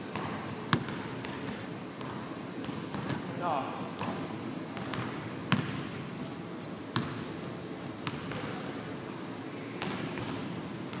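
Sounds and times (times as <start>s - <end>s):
basketball bouncing on wooden floor: 0.1s - 1.4s, 7.0s - 7.2s.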